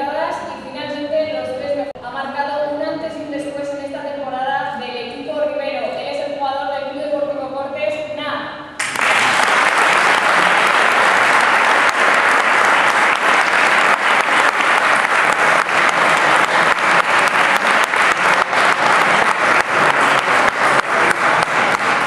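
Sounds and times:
audience applauding: 8.8s - 22.0s.

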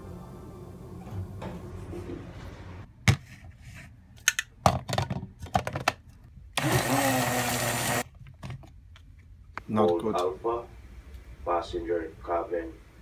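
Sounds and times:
blender motor running: 6.6s - 8.0s.

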